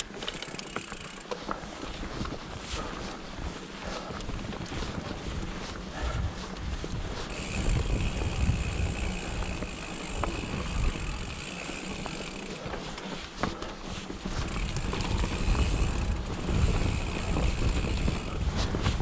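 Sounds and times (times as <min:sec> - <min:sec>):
bike knocks and rattles: 0:00.0 - 0:03.0, 0:06.9 - 0:19.0
bike tyres rolling over rocky trail: 0:00.0 - 0:19.0
wind buffeting microphone: 0:02.0 - 0:11.9, 0:14.2 - 0:19.0
freehub buzzing: 0:07.3 - 0:12.7, 0:14.4 - 0:18.4.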